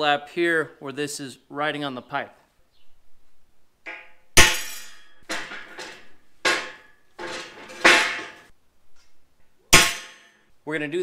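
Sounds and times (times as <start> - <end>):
hammer striking metal punch: 3.9 - 8.4, 9.7 - 10.3.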